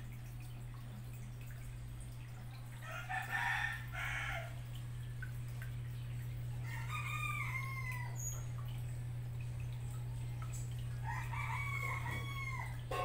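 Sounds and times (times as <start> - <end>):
aquarium pump humming: 0.0 - 13.0
rooster crowing: 2.8 - 4.6, 6.6 - 8.3, 11.0 - 13.0.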